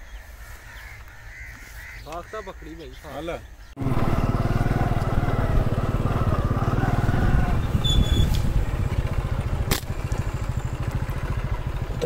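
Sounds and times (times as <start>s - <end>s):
motorcycle engine running: 3.8s - 12.0s.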